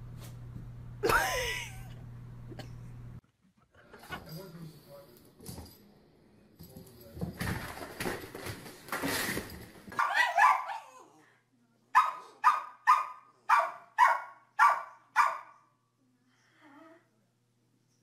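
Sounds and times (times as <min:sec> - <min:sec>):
small dog barking: 0:10.0 - 0:11.0, 0:12.0 - 0:15.6.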